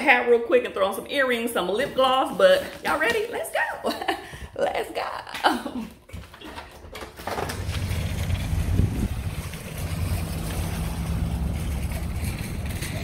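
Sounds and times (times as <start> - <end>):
wind buffeting microphone: 7.7 - 13.0.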